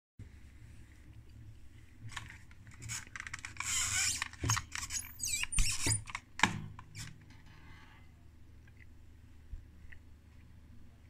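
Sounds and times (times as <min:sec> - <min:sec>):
plastic case squeaking: 0:02.8 - 0:07.2.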